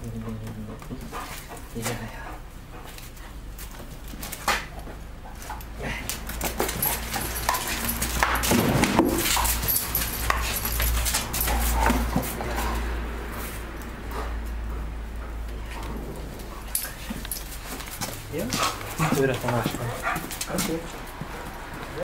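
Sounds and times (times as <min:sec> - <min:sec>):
dog scuffling: 0:00.4 - 0:22.0
dog claws on concrete: 0:02.8 - 0:12.9, 0:15.5 - 0:22.0.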